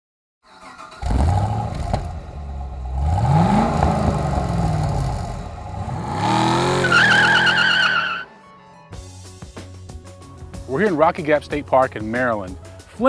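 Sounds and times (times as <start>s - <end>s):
car engine starting and revving: 0.5s - 8.3s.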